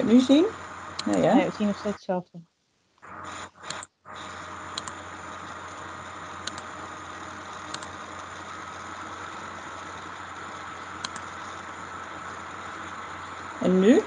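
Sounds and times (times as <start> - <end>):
thin steady whine: 0.0 - 2.2, 3.0 - 14.0
microphone hiss and hum: 0.0 - 14.0
short sharp clicks: 3.6 - 3.9.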